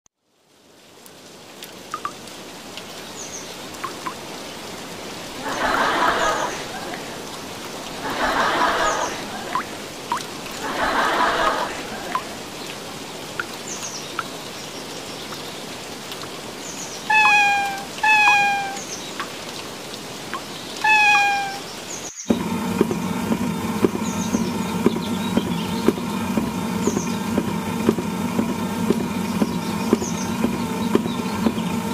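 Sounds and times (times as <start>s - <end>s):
cat meowing: 17.1s - 18.8s, 20.8s - 21.7s
steady low hum with clicks: 22.3s - 31.9s.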